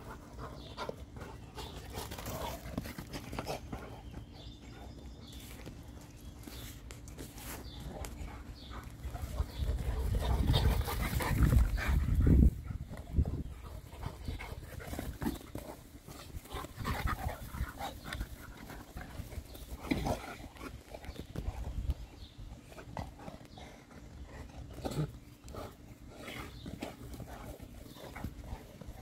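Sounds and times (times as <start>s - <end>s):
dogs scuffling on grass: 0.0s - 23.2s.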